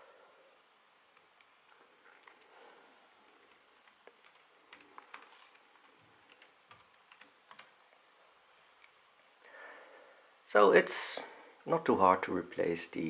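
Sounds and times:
laptop keyboard typing: 0:03.2 - 0:07.8.

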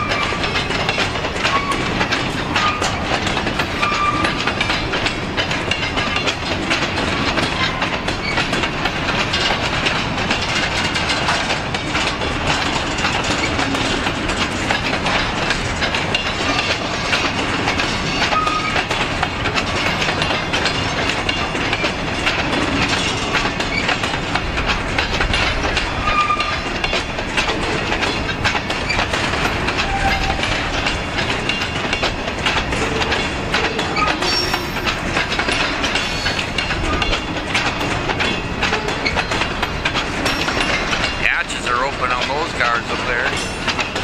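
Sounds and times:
freight train wheels rumbling: 0:00.0 - 0:44.0
high wheel squeals: 0:03.8 - 0:04.4, 0:26.0 - 0:26.7, 0:33.8 - 0:34.8.

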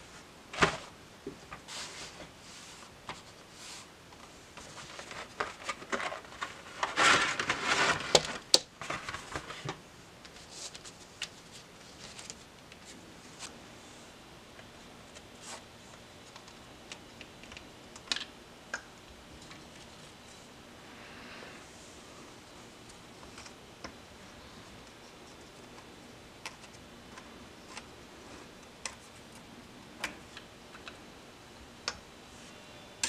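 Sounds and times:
paper gaskets rustling: 0:01.6 - 0:13.6.

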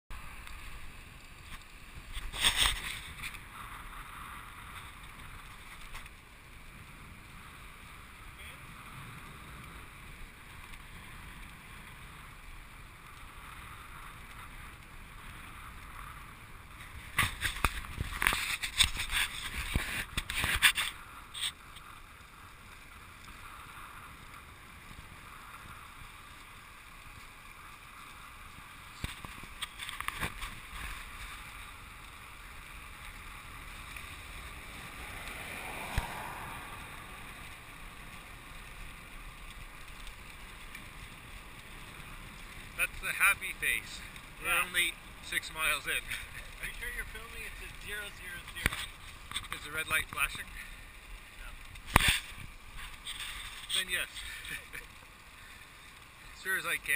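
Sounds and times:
wind buffeting crackle: 0:00.1 - 0:56.9
wind rushing over microphone: 0:33.7 - 0:38.4.

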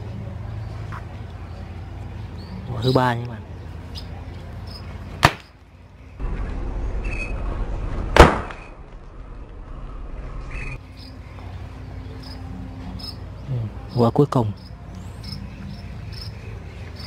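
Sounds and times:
firecracker bang: 0:08.0 - 0:08.8
firecracker cracking: 0:08.0 - 0:09.1.

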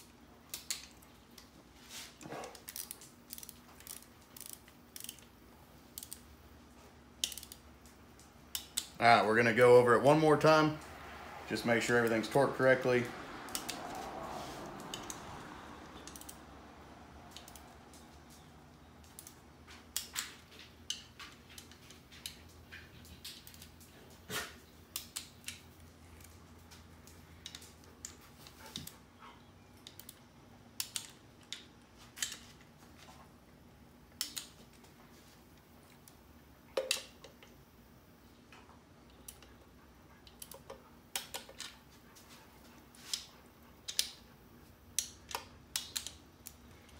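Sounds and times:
torque wrench clicks: 0:07.2 - 0:07.6.

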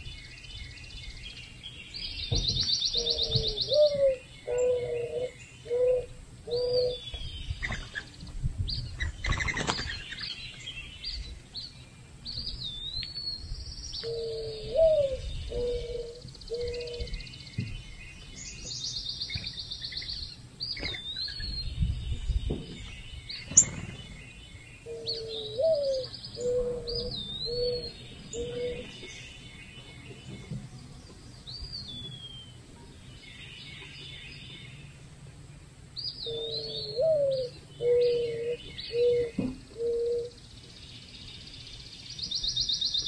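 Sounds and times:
small songbirds chirping: 0:00.0 - 0:43.0
doves cooing: 0:02.9 - 0:08.1, 0:14.0 - 0:17.3, 0:24.8 - 0:29.1, 0:36.2 - 0:40.4.

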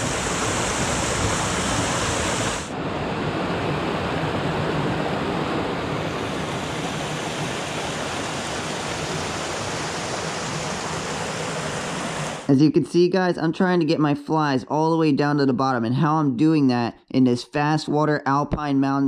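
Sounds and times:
stream water rushing over rocks: 0:00.0 - 0:02.7, 0:03.8 - 0:12.5.

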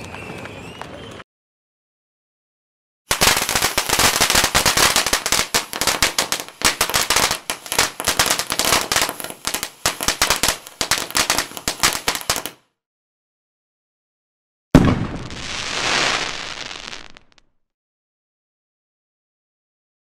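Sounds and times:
fireworks crackling: 0:03.1 - 0:12.6, 0:14.8 - 0:17.4.

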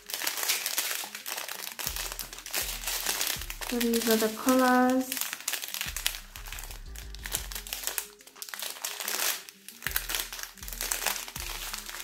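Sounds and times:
plastic bags crinkling: 0:00.0 - 0:12.0
soft background music: 0:00.0 - 0:12.0.

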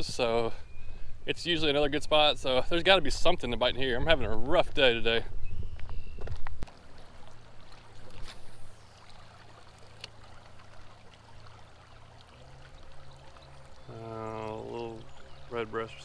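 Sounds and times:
creek trickling: 0:06.6 - 0:16.0.

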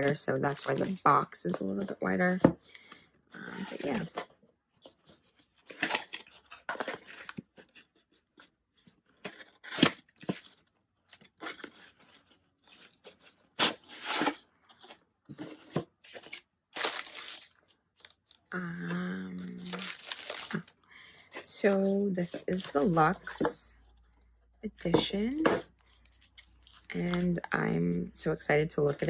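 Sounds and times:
cardboard scraping and rustling: 0:09.2 - 0:17.4.

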